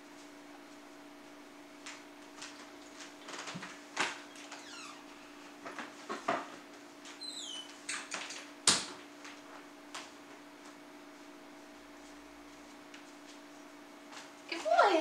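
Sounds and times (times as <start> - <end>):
low electrical hum: 0.0 - 15.0
brief falling squeaks: 7.2 - 7.8.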